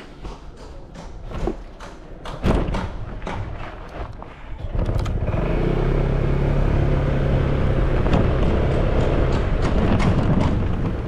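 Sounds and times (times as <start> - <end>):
scooter engine humming: 4.6 - 11.0
road noise rushing: 5.1 - 11.0.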